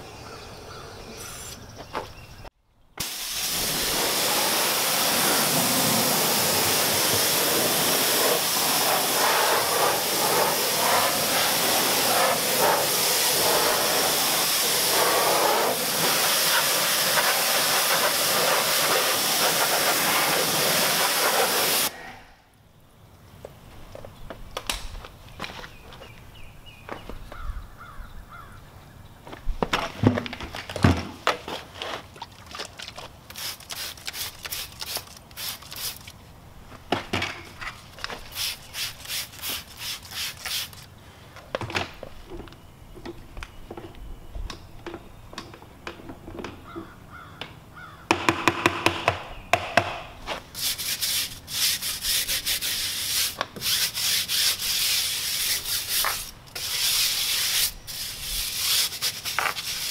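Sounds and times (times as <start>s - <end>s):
brush scrubbing wet tyre: 3.4s - 21.9s, 31.8s - 36.1s, 38.2s - 40.9s, 50.3s - 59.9s.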